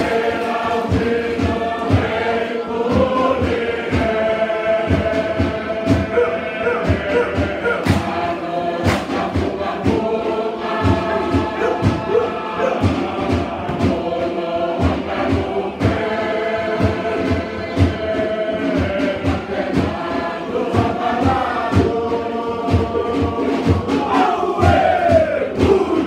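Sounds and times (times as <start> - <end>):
sharp struck beat: 0.0 - 20.1
choir singing: 0.0 - 26.0.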